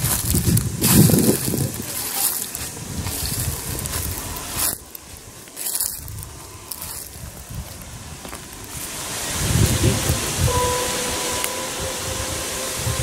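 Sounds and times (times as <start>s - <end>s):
microphone handling noise: 0.0s - 2.0s
quiet rustle: 0.0s - 8.9s
footsteps crunching dry leaves: 0.0s - 10.3s
wind rumble on microphone: 0.0s - 13.0s.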